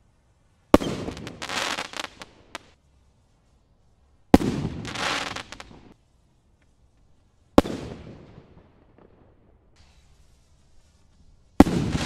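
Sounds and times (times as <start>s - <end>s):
firework crackling: 0.0s - 12.0s
firework rocket bang: 11.6s - 12.0s.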